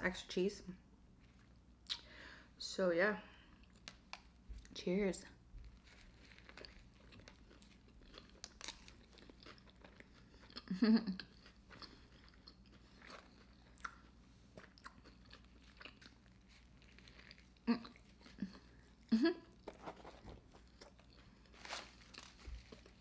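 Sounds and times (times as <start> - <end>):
mouth chewing food: 5.6 - 19.8.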